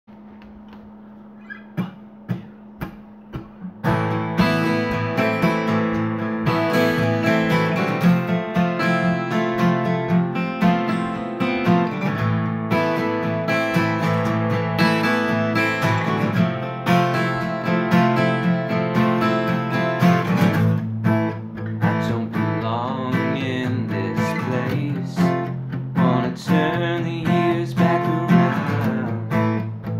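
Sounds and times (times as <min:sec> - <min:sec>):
soft taps: 0:00.1 - 0:01.2
acoustic guitars playing chords: 0:00.1 - 0:29.9.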